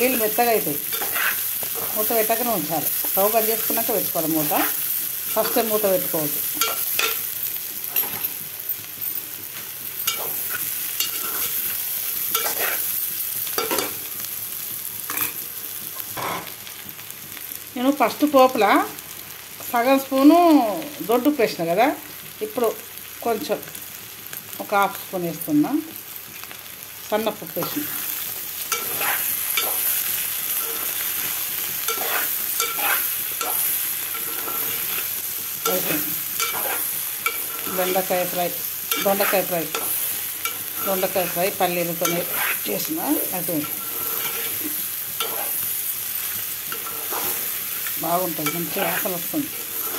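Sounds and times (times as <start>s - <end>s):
food sizzling in oil: 0.0s - 49.9s
spatula scraping pan: 0.8s - 2.4s, 10.1s - 13.0s, 27.6s - 45.7s, 46.7s - 49.9s.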